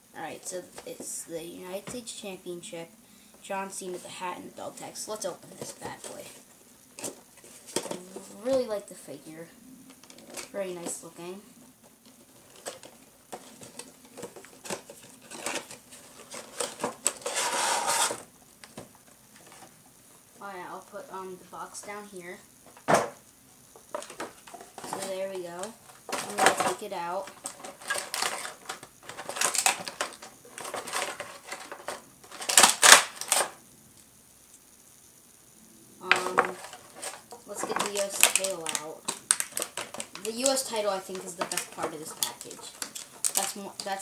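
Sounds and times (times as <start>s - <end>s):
plastic packaging crinkling: 12.0s - 18.8s, 23.8s - 33.6s, 36.1s - 44.0s
cardboard box crackling and rustling: 12.3s - 18.2s, 23.9s - 33.4s, 36.2s - 44.0s
plastic tray sliding out: 16.5s - 18.2s.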